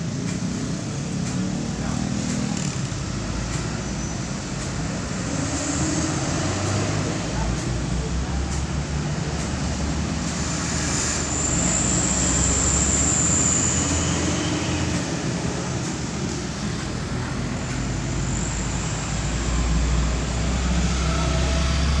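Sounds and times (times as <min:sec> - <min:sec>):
deep engine rumble: 0:00.0 - 0:10.5
road traffic: 0:00.0 - 0:22.0.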